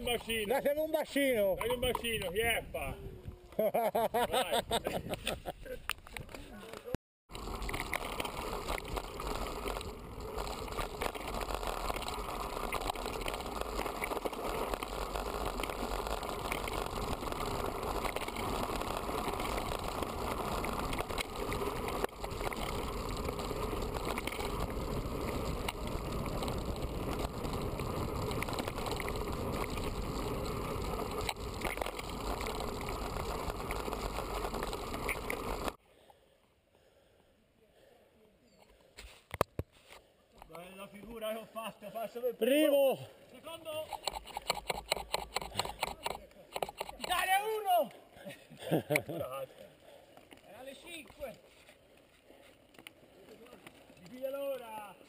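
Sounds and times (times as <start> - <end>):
bike tyres rushing on dirt: 7.3 - 35.8.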